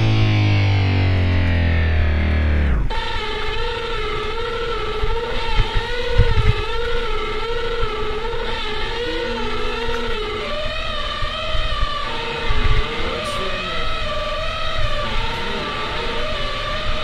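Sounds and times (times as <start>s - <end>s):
mountain bike buzzing whine: 0.0s - 17.0s.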